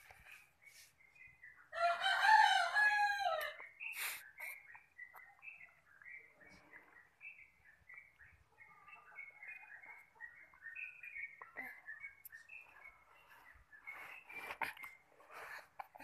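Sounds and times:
small birds chirping: 0.0s - 16.0s
rooster crowing: 1.7s - 3.6s.

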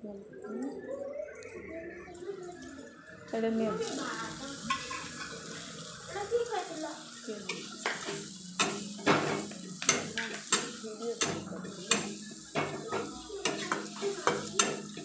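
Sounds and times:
food sizzling: 0.3s - 15.0s
metal spatula knocking wok: 7.5s - 15.0s.

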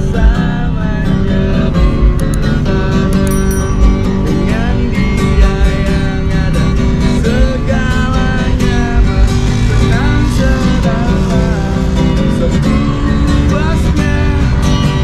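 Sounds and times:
man singing: 0.0s - 15.0s
strummed acoustic guitar: 0.0s - 15.0s.

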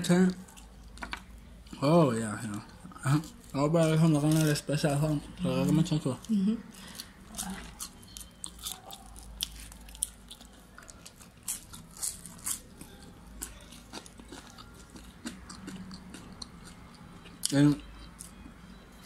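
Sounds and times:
biting and chewing: 6.2s - 18.4s.

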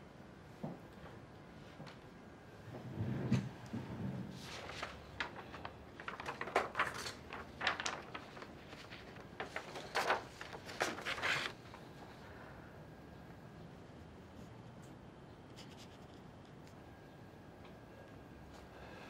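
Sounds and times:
paper rustling and scraping: 4.0s - 11.9s.

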